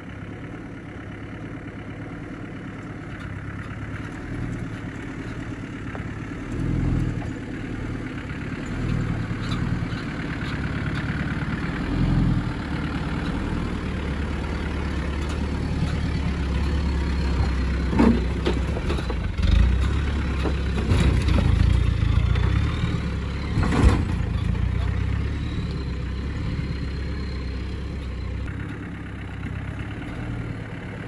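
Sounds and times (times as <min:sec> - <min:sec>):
diesel engine at low revs: 0:00.0 - 0:31.0.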